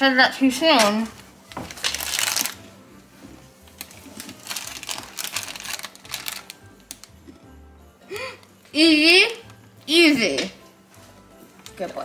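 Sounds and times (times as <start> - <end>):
plastic bag crinkling: 0.8 - 2.6, 3.6 - 7.2.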